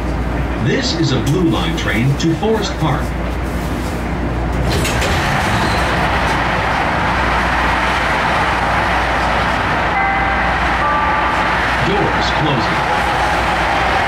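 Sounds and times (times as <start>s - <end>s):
expressway traffic noise: 0.0s - 14.0s
train door-closing chime: 10.0s - 11.4s.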